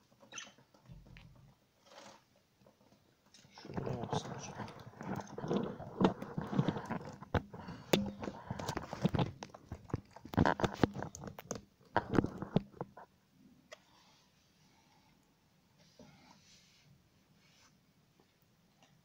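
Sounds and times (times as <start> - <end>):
rustling: 0.0 - 13.1.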